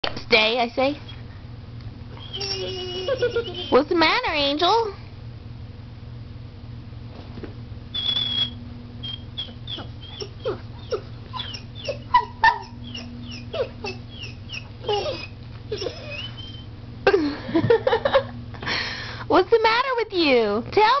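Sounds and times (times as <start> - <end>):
dog whining: 2.1 - 4.1, 8.0 - 16.7.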